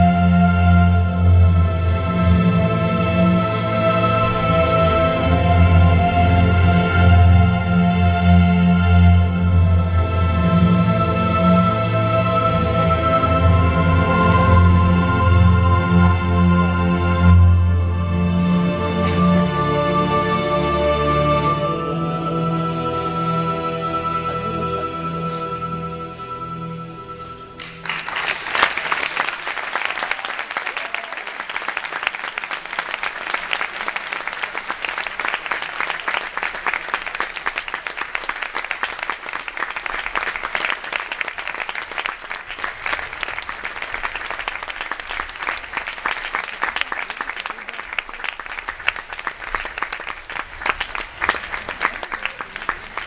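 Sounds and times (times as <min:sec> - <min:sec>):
audience applauding: 0:27.6 - 0:53.0.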